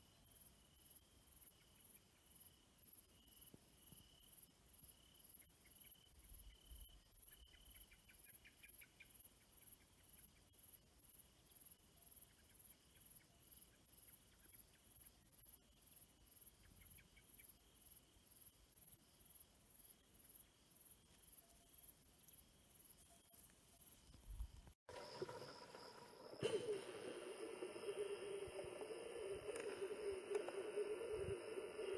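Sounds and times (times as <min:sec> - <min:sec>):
crickets chirping: 0:00.0 - 0:31.9.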